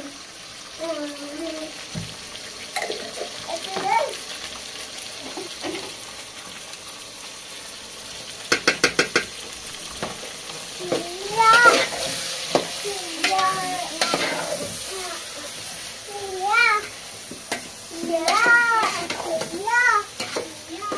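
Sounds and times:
meat sizzling in a pot: 0.0 - 20.9
sharp metal taps: 8.5 - 9.3
metal spoon stirring: 20.2 - 20.9.

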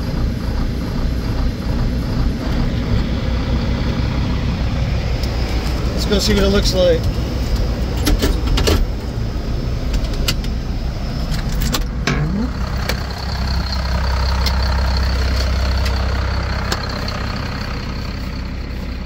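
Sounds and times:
diesel engine idling: 0.0 - 19.0
sharp clicks and knocks: 7.0 - 9.0, 9.9 - 10.6.

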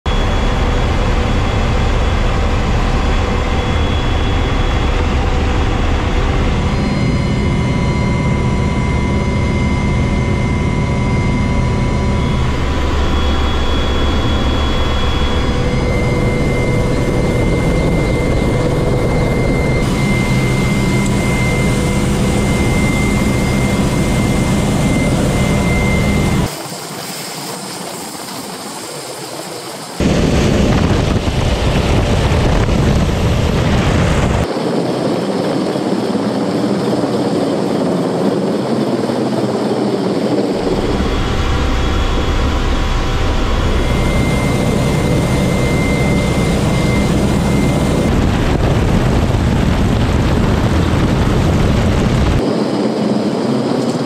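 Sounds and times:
helicopter engine and rotor noise: 0.0 - 54.0
high whine: 0.1 - 54.0
rotor downwash on sea: 0.1 - 54.0.

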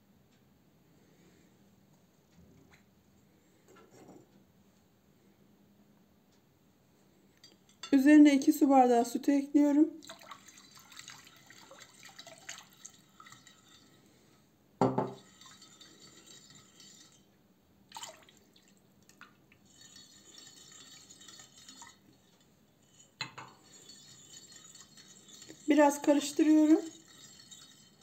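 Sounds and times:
liquid swishing and dripping: 10.0 - 14.1, 15.1 - 17.3, 17.9 - 28.0
knock: 14.8 - 15.2
wire whisk clinking on glass: 14.9 - 17.2, 19.7 - 28.0.

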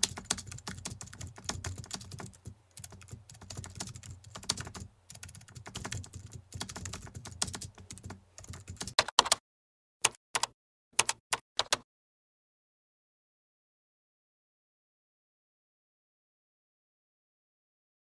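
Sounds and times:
keyboard typing clicks: 0.0 - 9.4, 10.0 - 11.8.

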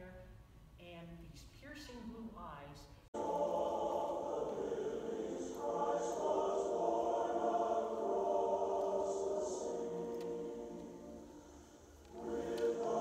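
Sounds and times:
choir singing sustained chords: 3.2 - 13.0.

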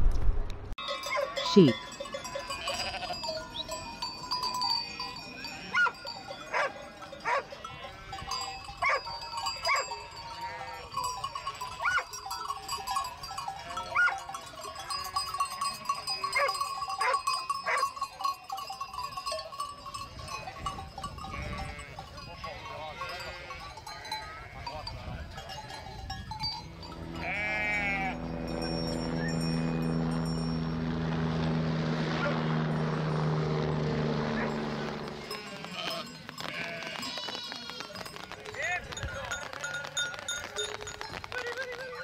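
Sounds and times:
sheep bleating: 2.4 - 3.4, 9.7 - 11.9, 13.4 - 14.2, 21.3 - 25.0, 27.1 - 28.7, 34.4 - 38.1.

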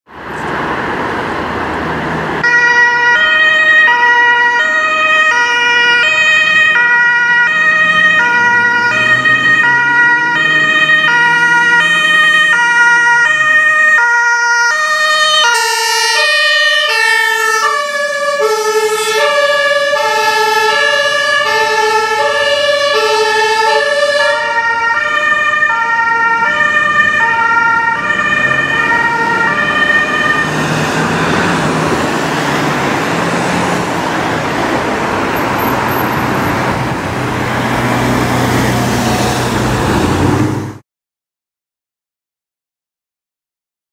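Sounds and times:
traffic noise: 0.0 - 40.8
two-tone ambulance horn: 2.4 - 31.8
van engine: 6.6 - 40.8.

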